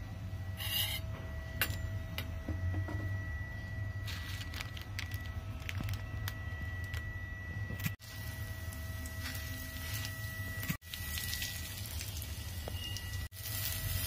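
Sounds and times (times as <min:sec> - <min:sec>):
low hum: 0:00.0 - 0:14.0
plastic packet crinkling: 0:04.1 - 0:07.0.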